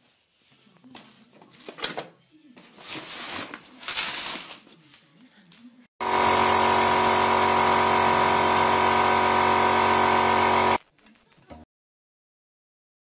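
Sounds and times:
air compressor droning: 6.0 - 10.8.

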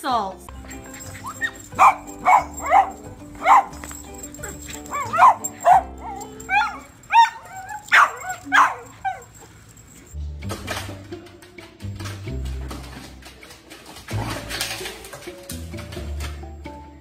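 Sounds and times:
background music: 0.0 - 17.0
puppy yapping and barking: 0.8 - 9.5.

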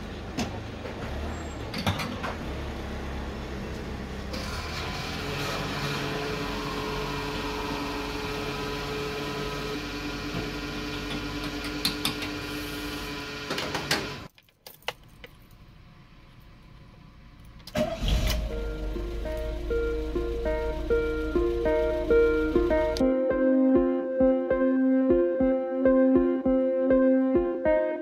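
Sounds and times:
van engine starting: 0.2 - 14.3, 15.4 - 23.0
fuel pump humming: 17.6 - 23.0.

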